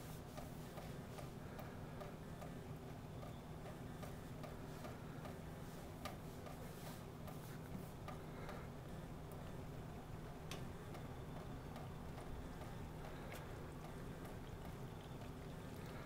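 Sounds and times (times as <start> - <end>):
low steady hum: 0.0 - 16.0
kittens lapping water: 3.7 - 16.0
water trickling from faucet: 11.0 - 16.0.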